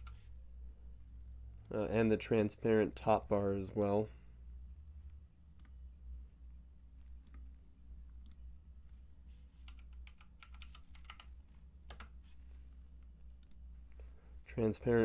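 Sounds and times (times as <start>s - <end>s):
keyboard typing: 0.0s - 0.3s, 9.6s - 12.2s
low steady hum: 0.0s - 15.0s.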